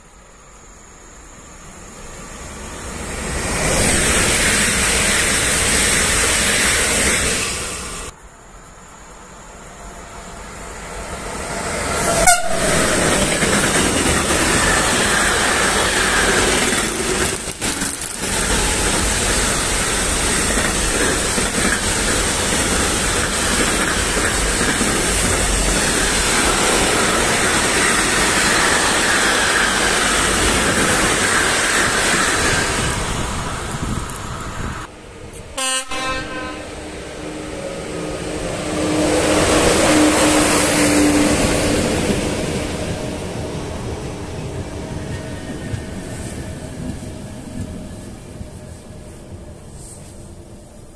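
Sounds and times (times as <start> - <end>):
electric locomotive hum: 0.0 - 50.9
train wheels on rails: 1.7 - 8.2, 10.0 - 50.9
train horn: 12.0 - 13.2, 35.6 - 37.5.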